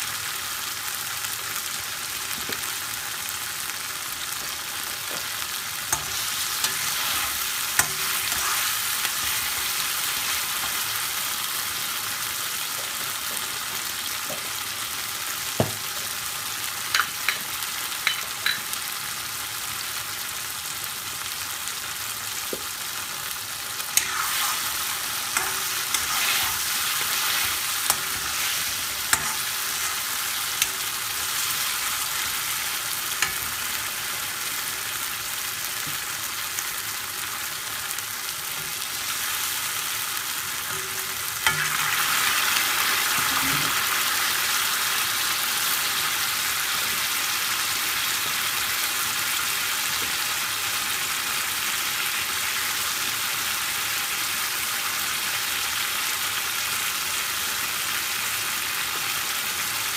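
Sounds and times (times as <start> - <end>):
curry sizzling in a pan: 0.0 - 59.9
spatula scraping and knocking pan: 5.9 - 9.9, 24.0 - 30.8.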